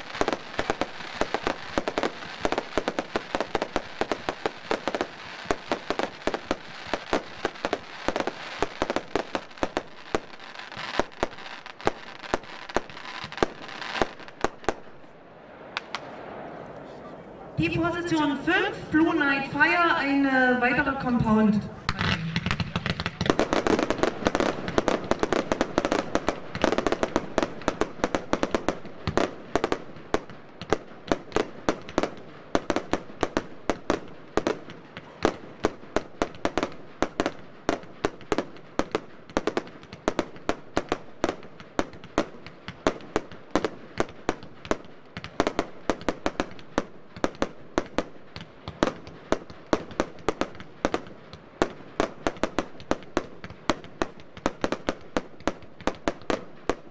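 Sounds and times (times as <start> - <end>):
firework battery firing: 21.8 - 56.9.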